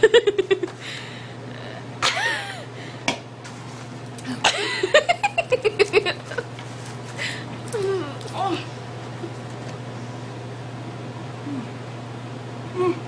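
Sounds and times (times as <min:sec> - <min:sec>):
steady low hum: 0:00.0 - 0:13.0
woman coughing and sputtering: 0:04.3 - 0:06.4.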